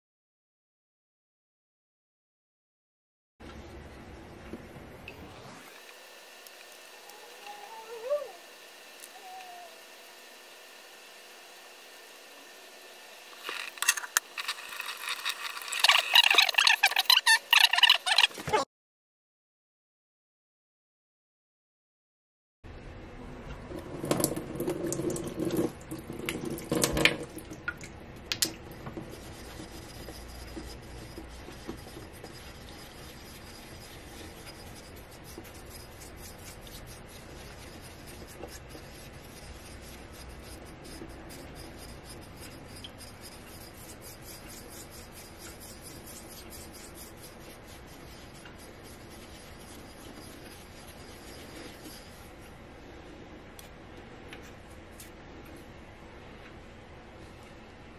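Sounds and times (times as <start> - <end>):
stone grinding on whetstone: 13.3 - 18.4, 28.8 - 52.5
water splashing in sink: 23.7 - 29.2.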